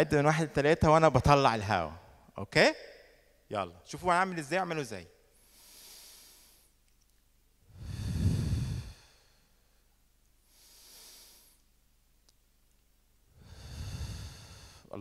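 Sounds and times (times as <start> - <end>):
man breathing into microphone: 5.4 - 6.8, 7.7 - 9.6, 10.5 - 11.6, 13.4 - 15.0.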